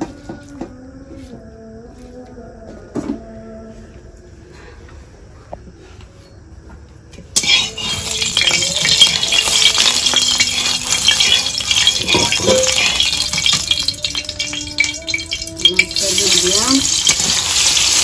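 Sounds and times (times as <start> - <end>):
metal spatula clinking against pan: 7.4 - 17.9
hot oil sizzling and crackling: 7.4 - 18.0.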